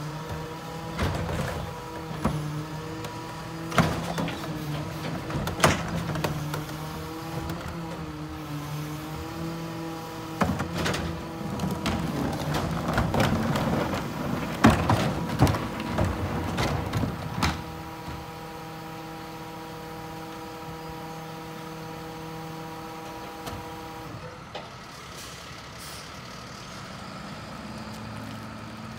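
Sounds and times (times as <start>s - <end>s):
trash carts knocking and banging: 0.0s - 8.3s, 9.0s - 20.7s.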